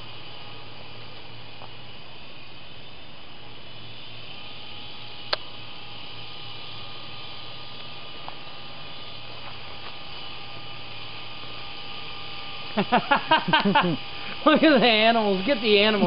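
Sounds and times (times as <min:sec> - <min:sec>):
toy helicopter motor whining: 0:00.0 - 0:16.0
sharp click: 0:05.3 - 0:05.5.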